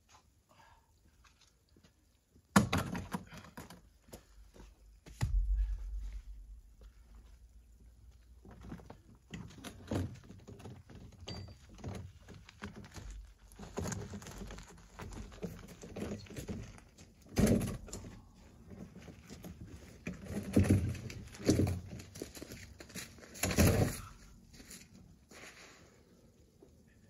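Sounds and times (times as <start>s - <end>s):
boot footsteps on dirt: 4.2s - 7.5s
heavy stones thudding on ground: 5.1s - 6.6s, 17.2s - 18.2s, 23.3s - 24.2s.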